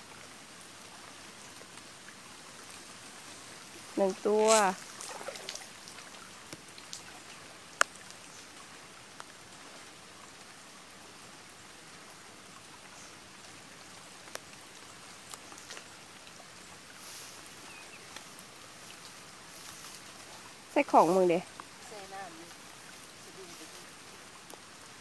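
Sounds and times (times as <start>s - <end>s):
dripping water: 0.0s - 10.6s
light rain patter: 0.0s - 25.0s
rush of water: 0.0s - 25.0s.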